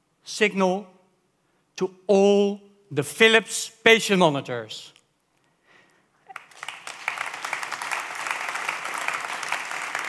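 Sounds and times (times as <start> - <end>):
audience applauding: 6.3 - 10.0.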